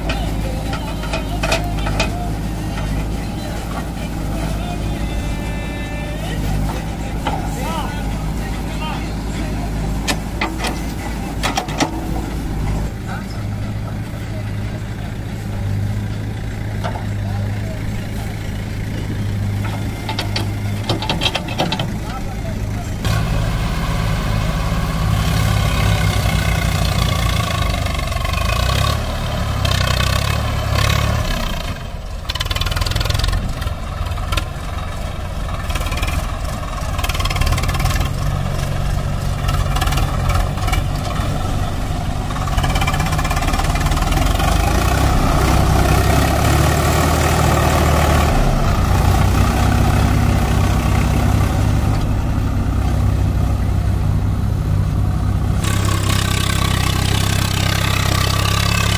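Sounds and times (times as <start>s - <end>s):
diesel engines running: 0.0s - 58.9s.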